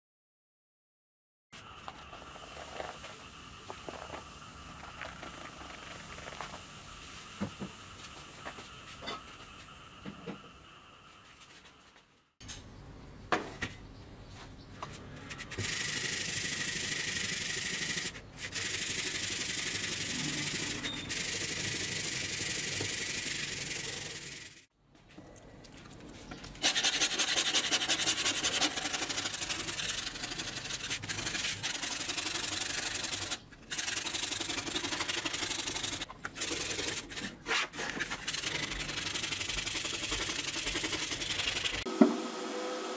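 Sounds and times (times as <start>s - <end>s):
foaming cleaner fizzing: 1.7s - 8.9s.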